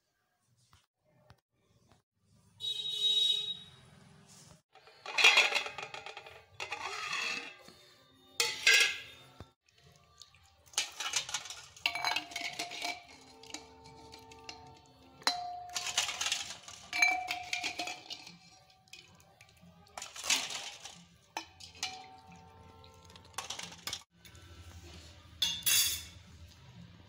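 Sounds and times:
steel bowls clanking and ringing: 8.4 - 9.2, 10.8 - 19.0, 20.0 - 24.0.

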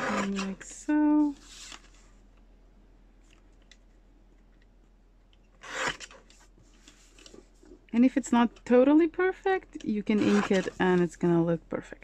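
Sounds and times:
paper trimmer blade cutting paper: 5.6 - 6.1.

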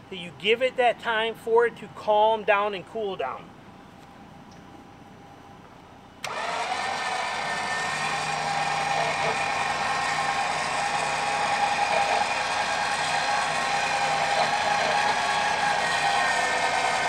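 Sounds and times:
electric winch running: 6.2 - 17.0.

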